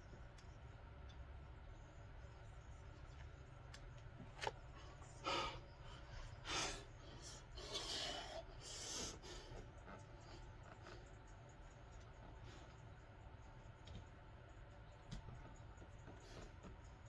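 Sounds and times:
man breathing heavily: 4.6 - 11.2.

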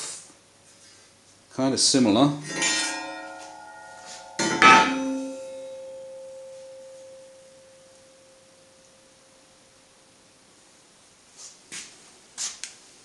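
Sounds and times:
steel plate clanging and ringing: 2.4 - 8.5.

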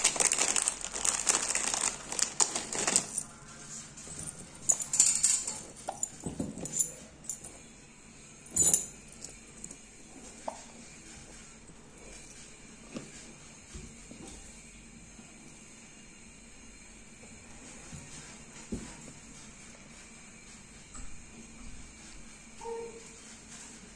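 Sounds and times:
plastic packaging crinkling: 0.0 - 3.4
chains clicking and rustling: 0.0 - 7.6, 8.4 - 9.9.

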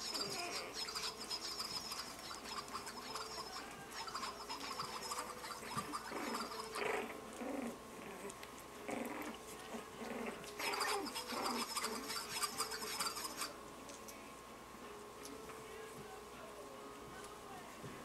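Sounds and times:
puppies growling and yipping: 0.0 - 13.5.

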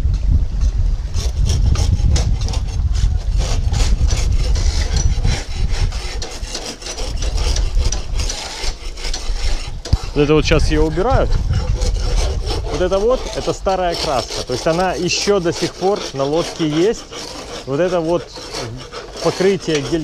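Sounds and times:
low rumble: 0.0 - 5.8, 10.0 - 13.4
scrapers rasping on hull: 1.1 - 20.0.

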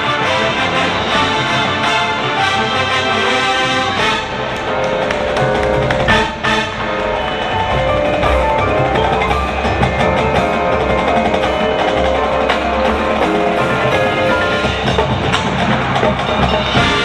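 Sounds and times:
wind instruments holding chords: 0.0 - 17.0
drum percussion strikes: 4.0 - 17.0.

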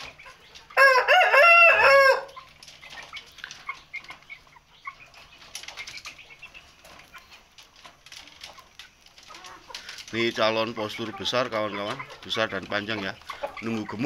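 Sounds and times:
rooster crowing: 0.8 - 2.3
chicken pecking feed clicks: 2.3 - 4.3.

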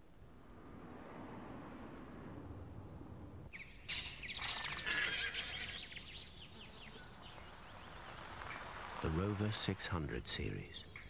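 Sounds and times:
faint outdoor background noise: 0.0 - 11.0.

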